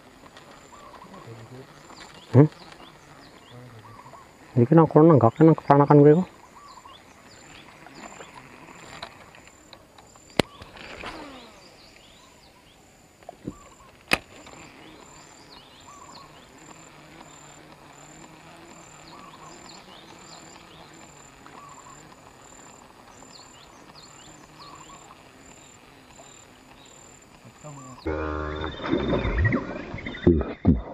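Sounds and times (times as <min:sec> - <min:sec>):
insect buzzing: 0:00.0 - 0:30.9
bird chirps: 0:00.7 - 0:04.4, 0:05.2 - 0:08.4, 0:14.6 - 0:17.6, 0:18.4 - 0:30.9
falling whir: 0:07.2 - 0:12.0.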